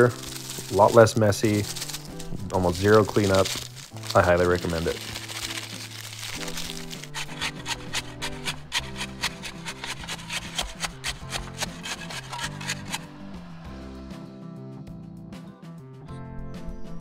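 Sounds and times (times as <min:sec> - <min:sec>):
tool scraping wet concrete: 0:00.0 - 0:13.2
background music: 0:00.0 - 0:17.0.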